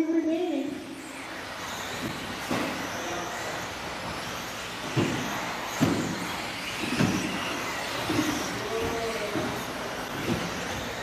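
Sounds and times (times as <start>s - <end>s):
rc car motor whine: 0.0s - 11.0s.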